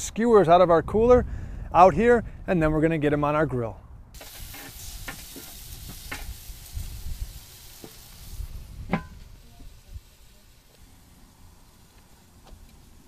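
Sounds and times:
meat sizzling on a grill: 0:04.2 - 0:13.0
grill lid shutting with metal clank: 0:08.8 - 0:09.3.

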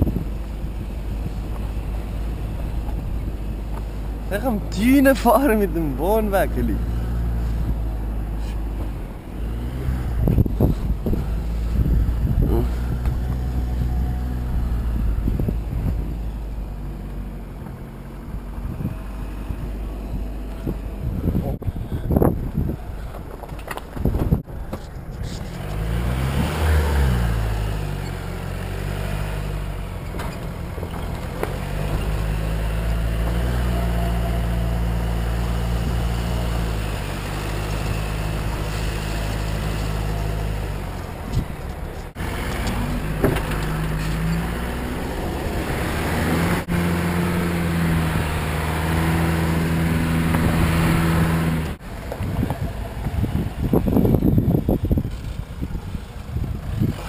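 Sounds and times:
diesel engine droning under load: 0:00.0 - 0:23.5, 0:24.4 - 0:57.0
wind rushing: 0:08.9 - 0:16.3.

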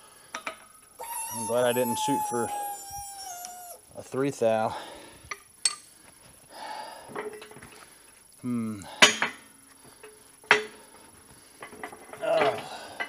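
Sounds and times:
person grunting: 0:08.4 - 0:08.9.

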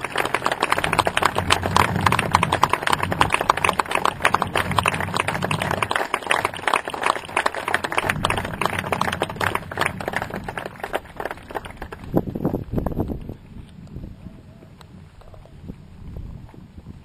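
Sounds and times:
crowd applauding: 0:00.0 - 0:12.6.

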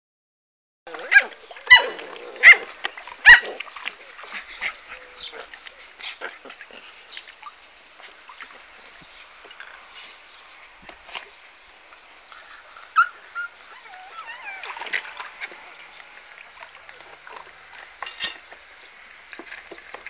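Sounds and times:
puppies yipping: 0:00.9 - 0:06.6, 0:12.4 - 0:15.9.

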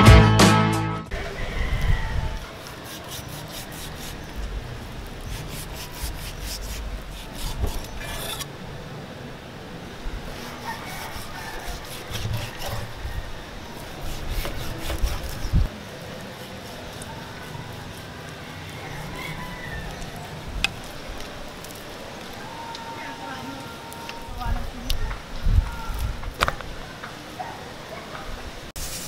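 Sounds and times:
knife slicing meat: 0:02.6 - 0:04.3, 0:14.0 - 0:15.6.

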